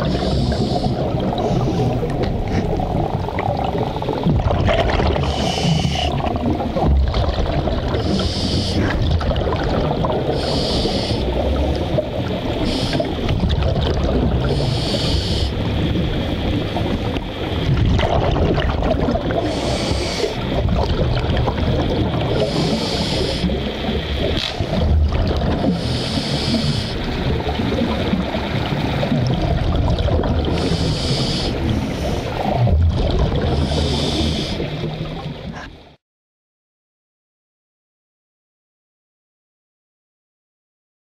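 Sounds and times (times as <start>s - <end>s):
hissing breath through regulator: 0.0s - 2.8s, 5.2s - 6.2s, 8.0s - 9.0s, 10.3s - 11.6s, 12.6s - 13.2s, 14.4s - 15.6s, 19.4s - 20.5s, 22.4s - 23.6s, 25.6s - 27.1s, 30.5s - 32.5s, 33.4s - 34.7s
rumble of exhaled bubbles: 0.0s - 36.0s.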